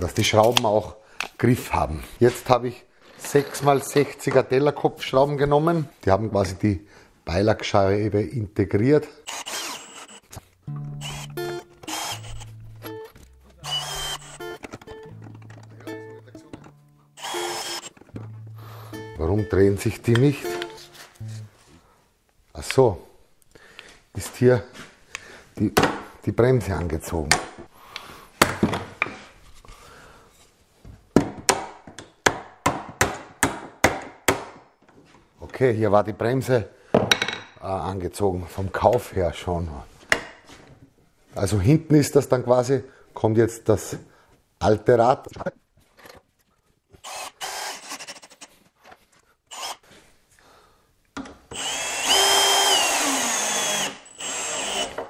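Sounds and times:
cordless drill driving screws: 9.3 - 10.4, 11.0 - 12.5, 13.6 - 14.6, 17.2 - 18.0, 47.0 - 48.5, 49.5 - 49.8, 51.5 - 55.0.

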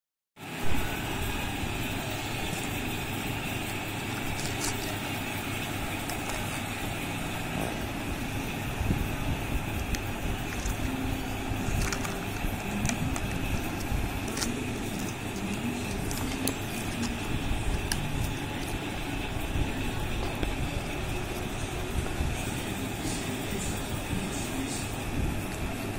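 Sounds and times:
plastic and foil packaging crinkling: 4.2 - 5.1, 9.8 - 20.4.

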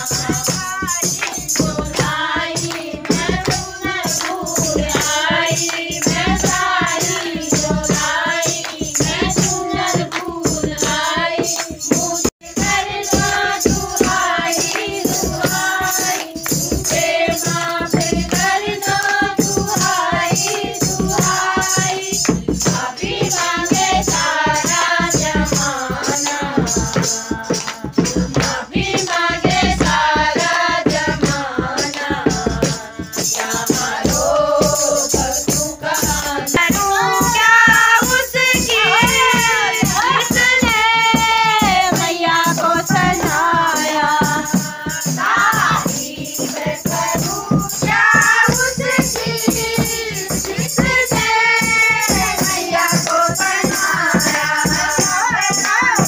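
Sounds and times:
women singing together: 0.0 - 56.0
hand clapping: 0.1 - 12.0, 14.0 - 21.4, 24.7 - 29.8, 30.4 - 41.7, 45.2 - 56.0
handheld clapper shaken: 33.1 - 56.0.

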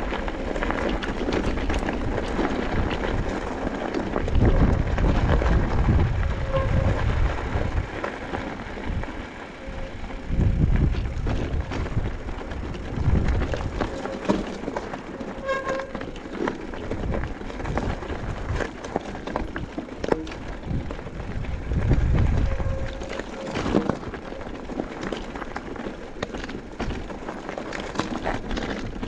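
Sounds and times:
wind buffeting microphone: 0.0 - 14.2, 16.8 - 24.2
bike frame and chain rattling: 0.0 - 29.0
tyres crunching on gravel: 0.0 - 29.0
short squeal: 15.3 - 16.0.

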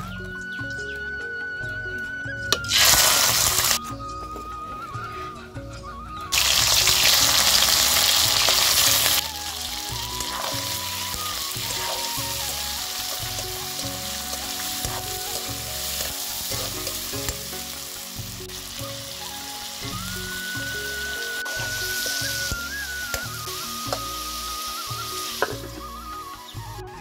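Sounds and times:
chicken sizzling in hot oil: 2.6 - 3.8, 6.3 - 26.2
metal ladle stirring: 7.6 - 17.8.

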